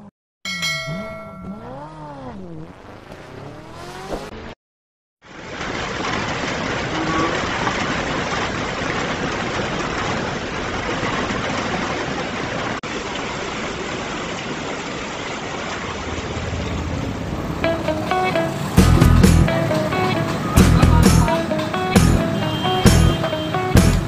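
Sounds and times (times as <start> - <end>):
heavy rain falling: 5.3 - 24.0.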